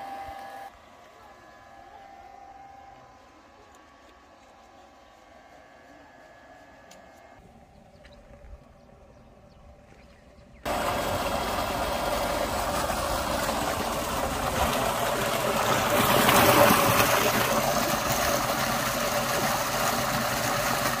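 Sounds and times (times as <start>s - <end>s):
water gushing into tank: 10.7s - 21.0s.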